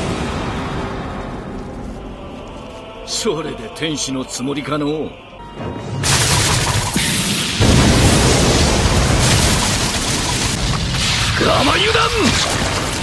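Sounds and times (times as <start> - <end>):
loud rushing blast: 0.0 - 1.8, 5.9 - 11.4.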